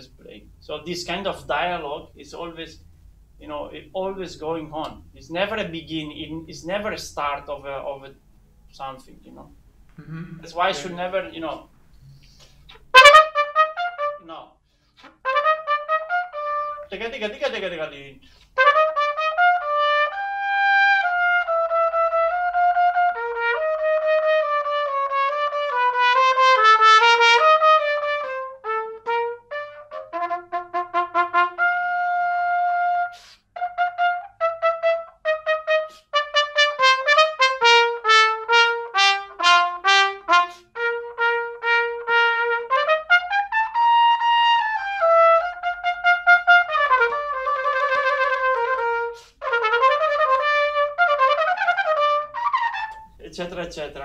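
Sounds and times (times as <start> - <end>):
solo trumpet playing: 12.2 - 17.0, 18.2 - 53.2.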